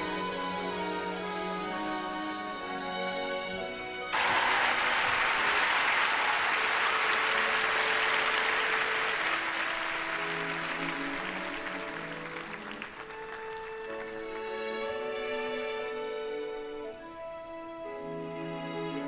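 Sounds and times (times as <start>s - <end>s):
soft instrumental music: 0.0s - 5.8s, 6.6s - 19.0s
large audience applauding: 4.1s - 14.9s.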